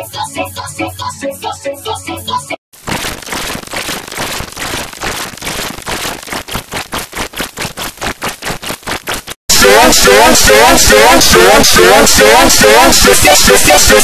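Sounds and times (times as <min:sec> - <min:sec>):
music: 0:00.0 - 0:02.6
crackling digital distortion noise: 0:02.8 - 0:14.0.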